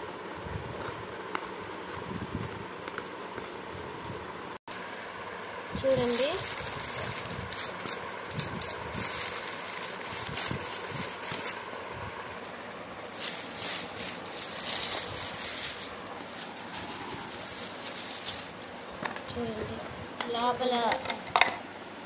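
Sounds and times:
plastic wrapping crinkling: 5.8s - 11.7s, 13.1s - 18.8s
scissors cutting plastic: 6.0s - 11.6s.

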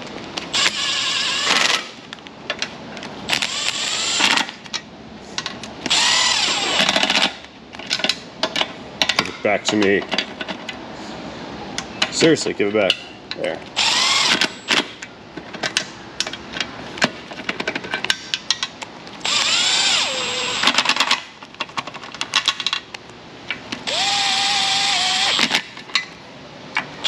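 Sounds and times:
tools clicking and knocking: 6.8s - 10.8s, 14.3s - 18.8s
impact tool running bolts: 13.8s - 14.9s, 23.8s - 25.8s.

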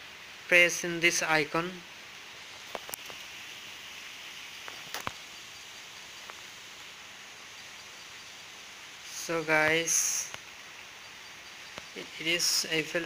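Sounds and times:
steady background hiss: 0.0s - 13.0s
faint sharp clicks: 11.7s - 12.0s.

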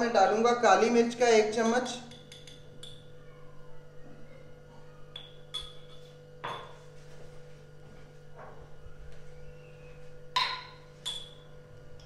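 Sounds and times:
spoon clinking on kitchenware: 2.1s - 3.1s, 5.1s - 6.8s, 10.4s - 11.5s.

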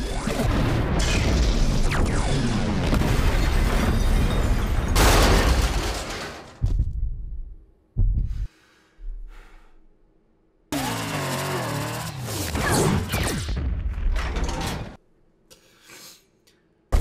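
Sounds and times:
rumbling explosions: 0.4s - 7.2s.

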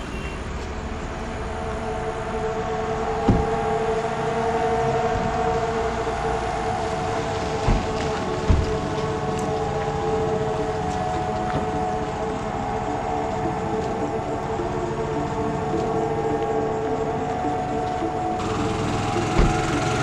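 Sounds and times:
synth drone: 0.0s - 20.0s
deep thuds: 7.3s - 9.1s.

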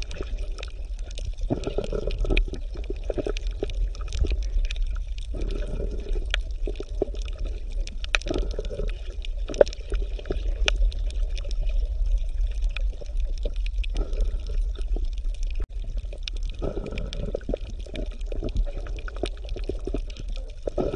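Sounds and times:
bubbling: 0.0s - 20.9s
underwater rumble of moving water: 0.0s - 20.9s.

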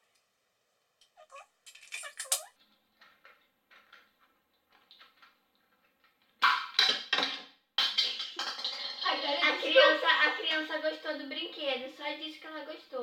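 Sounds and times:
plastic pieces clicking: 1.7s - 4.1s.

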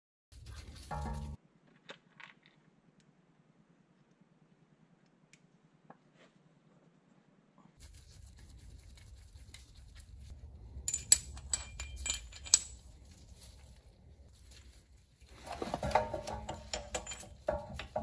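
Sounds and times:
metal tool parts clinking: 10.8s - 12.8s, 15.8s - 18.0s.

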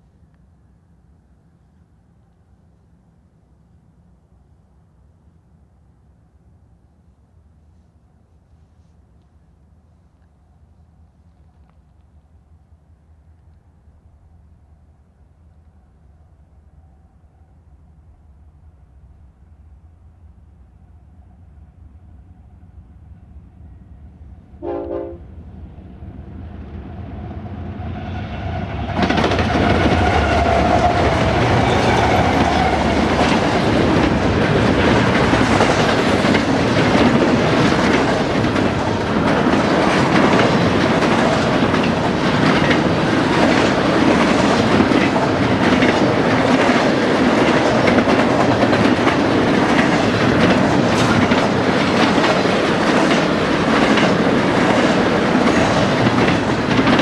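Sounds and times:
diesel locomotive rumble: 19.6s - 57.0s
locomotive horn blast: 24.6s - 25.3s
train wheels clacking over rail joints: 28.9s - 57.0s.

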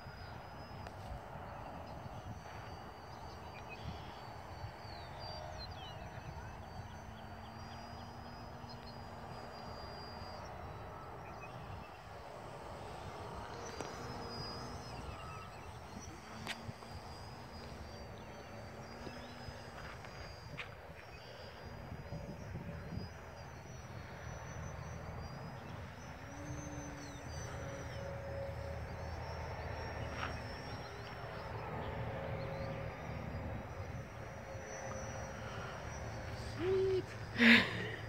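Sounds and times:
model plane motor drone: 0.0s - 38.0s
wind noise: 0.0s - 38.0s
birds calling: 0.1s - 38.0s.

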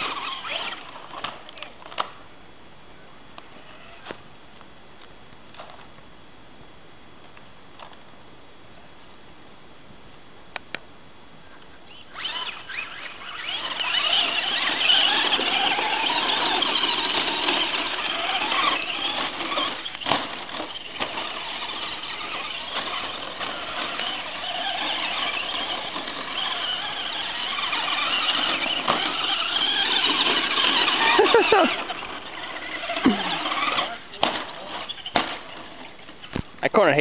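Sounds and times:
electric motors whining: 0.0s - 2.1s, 3.4s - 4.2s, 11.8s - 36.5s.

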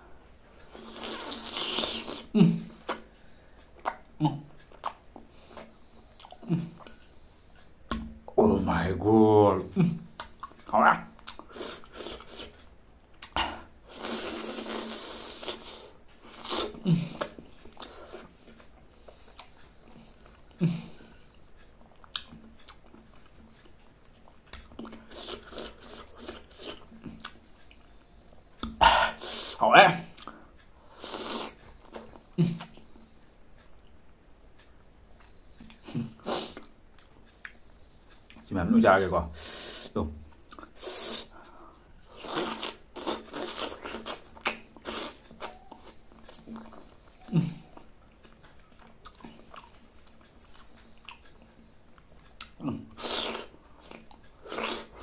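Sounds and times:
wet chewing and lip-smacking: 0.8s - 8.1s, 10.1s - 13.4s, 21.4s - 29.5s, 30.1s - 38.5s, 40.3s - 41.3s, 42.0s - 55.0s.

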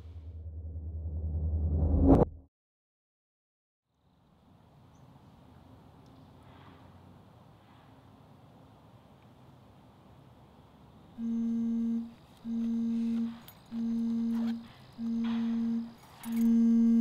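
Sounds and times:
mobile phone vibrating in a bag: 11.2s - 17.0s.

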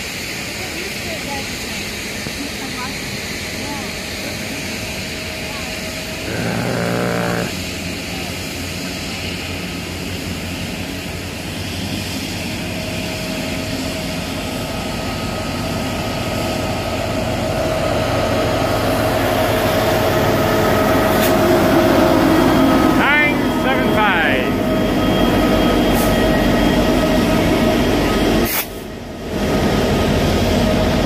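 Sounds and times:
diesel locomotives passing: 0.0s - 31.0s
steady whine: 6.2s - 7.6s.

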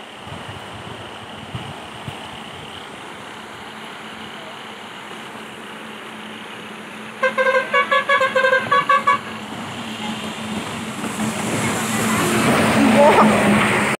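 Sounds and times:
floodwater rushing: 0.0s - 13.9s
vehicle horn tooting: 7.2s - 9.4s.

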